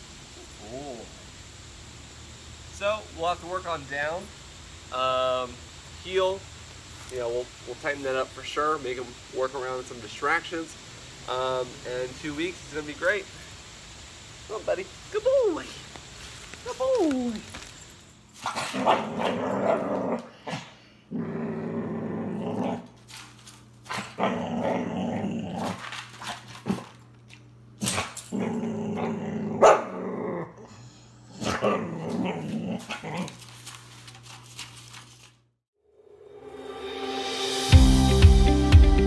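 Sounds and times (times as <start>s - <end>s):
puppy growling: 18.5s - 23.0s, 23.9s - 25.9s, 27.8s - 33.4s.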